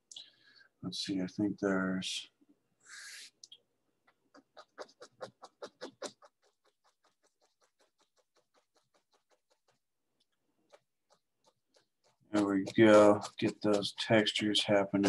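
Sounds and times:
paint brush tapping canvas: 3.9 - 15.0.

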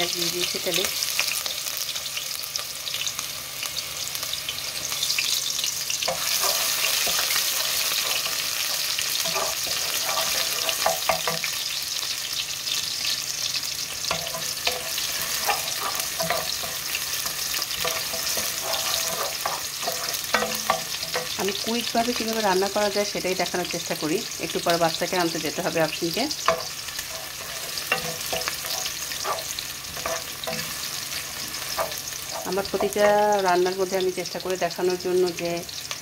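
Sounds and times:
onion sizzling in oil: 0.0 - 36.0
wooden spoon scraping a pot: 6.1 - 11.5, 14.1 - 21.4, 26.3 - 33.0.

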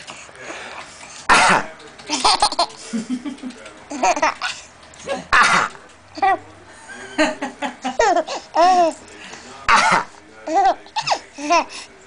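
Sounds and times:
adult fake coughing: 1.3 - 1.7, 5.1 - 5.8, 9.7 - 10.2
baby laughing: 2.1 - 2.7, 3.9 - 4.6, 7.8 - 9.0, 9.7 - 11.8.

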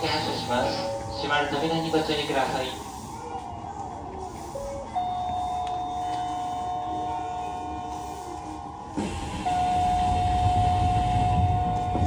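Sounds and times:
electric train hum: 0.0 - 12.0
electronic signal tone: 9.3 - 12.0.

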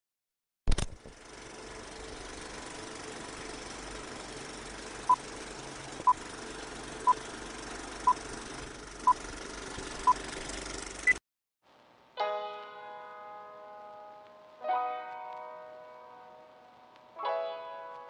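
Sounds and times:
film projector running: 0.7 - 11.1.

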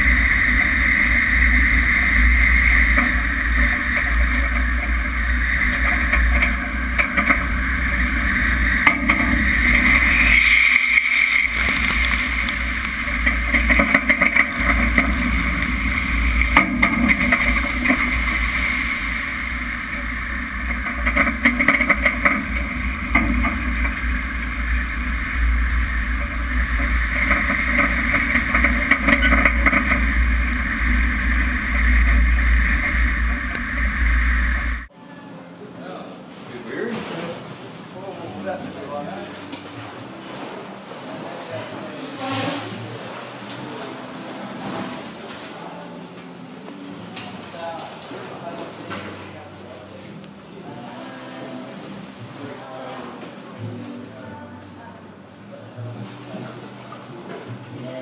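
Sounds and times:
deep rumble: 0.0 - 34.9
wind and breaking water: 0.0 - 34.9.

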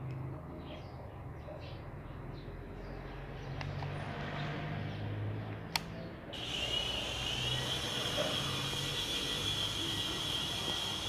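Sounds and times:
toy helicopter rotor whine: 6.4 - 11.0.

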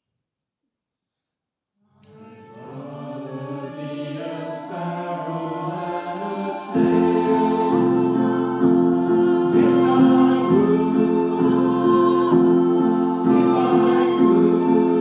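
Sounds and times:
choir singing: 2.0 - 15.0
electric piano: 6.7 - 15.0.

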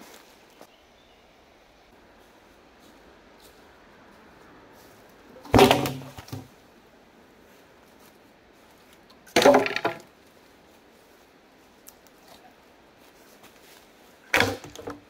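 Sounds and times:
wooden logs knocking and clattering: 5.4 - 6.5, 9.2 - 10.1, 14.2 - 15.0.

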